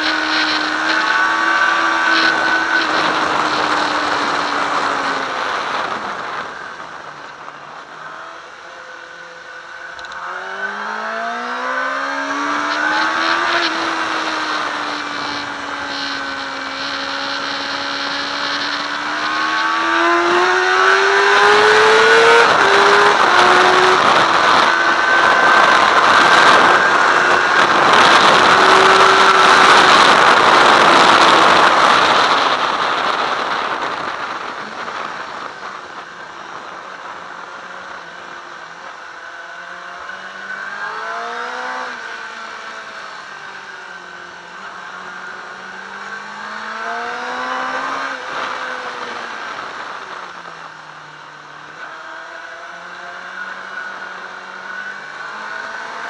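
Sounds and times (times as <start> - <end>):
rushing wind noise: 0.0 - 8.5, 10.0 - 52.5
motorcycle engine revving: 0.0 - 56.0.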